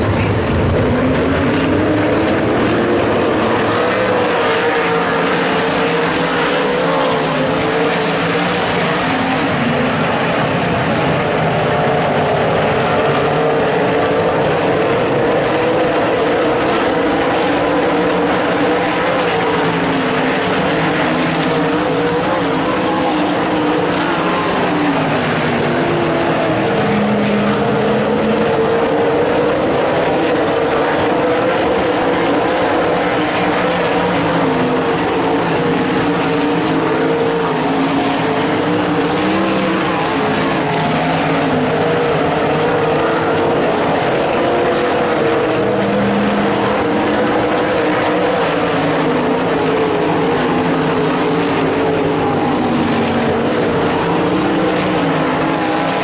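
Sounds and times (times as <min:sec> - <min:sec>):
racing car engines: 0:00.0 - 0:56.0.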